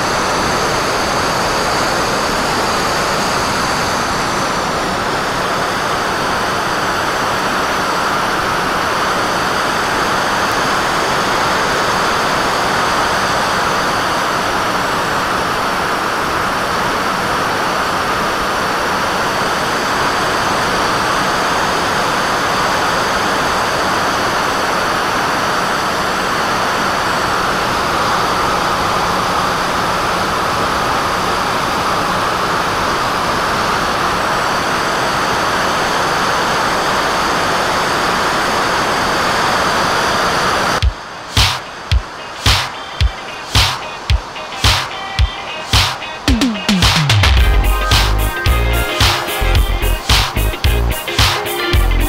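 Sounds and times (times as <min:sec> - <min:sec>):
thin high whine: 0:37.4 - 0:52.0.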